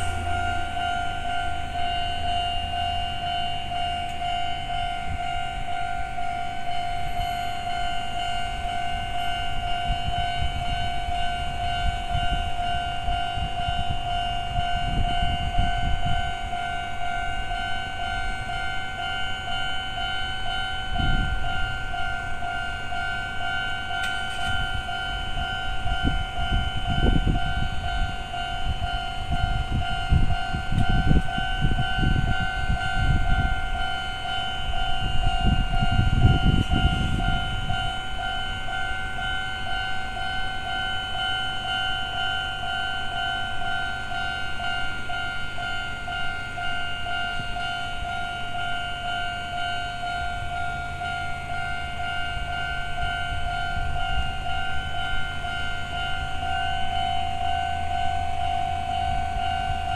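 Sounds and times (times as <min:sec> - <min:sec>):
level crossing bell ringing: 0:00.0 - 0:59.9.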